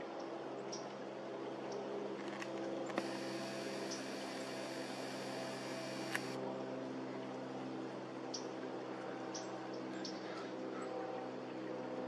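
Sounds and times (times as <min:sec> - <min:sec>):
click: 0:02.9 - 0:06.4
camera zoom motor whirring: 0:03.0 - 0:06.4
low electrical hum: 0:03.0 - 0:06.4.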